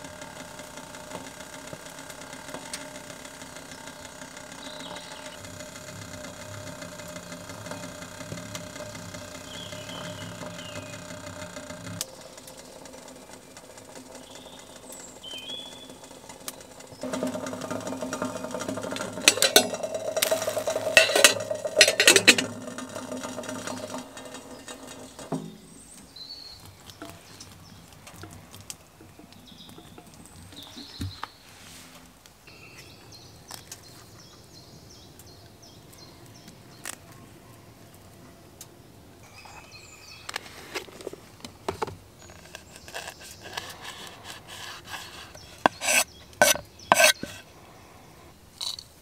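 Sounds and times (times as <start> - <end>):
kettle boiling and rumbling: 0.0 - 32.5, 33.2 - 49.0
faint birds chirping: 0.0 - 48.6
kettle spitting and rattling: 15.2 - 25.7, 40.3 - 47.4.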